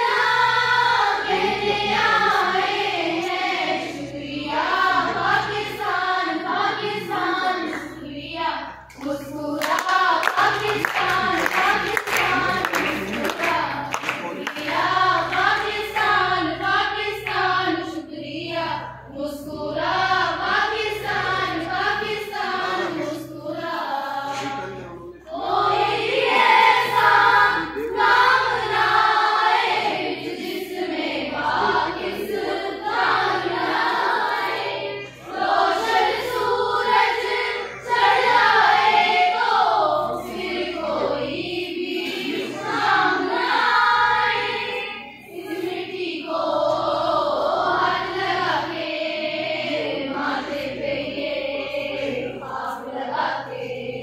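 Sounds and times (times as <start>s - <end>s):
girls singing together: 0.0s - 54.0s.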